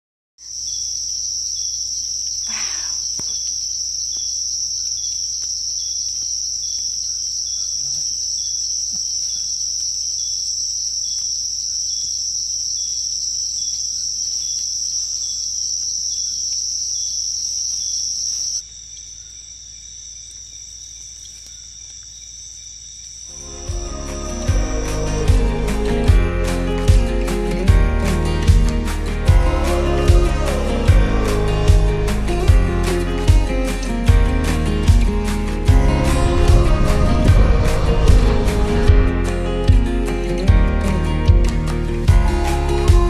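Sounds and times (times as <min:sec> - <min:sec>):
faint insect chirp: 0:00.4 - 0:23.7
insect trill: 0:00.4 - 0:40.4.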